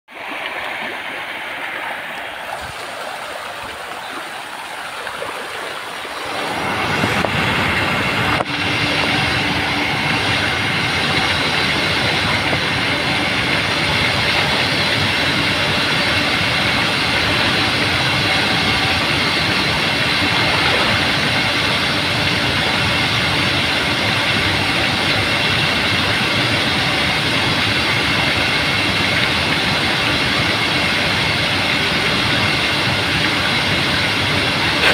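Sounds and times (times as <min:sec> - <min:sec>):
faint steady hum: 0:00.1 - 0:34.9
water jet pouring into pond: 0:00.1 - 0:34.9
fish thrashing in water: 0:11.0 - 0:23.8.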